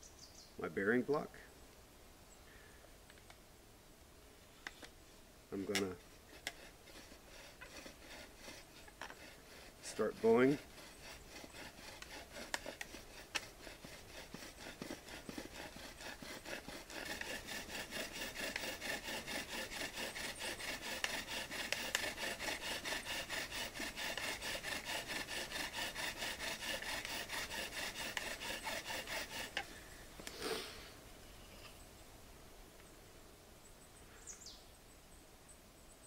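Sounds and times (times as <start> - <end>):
bow drill rubbing rasp: 4.6 - 30.6.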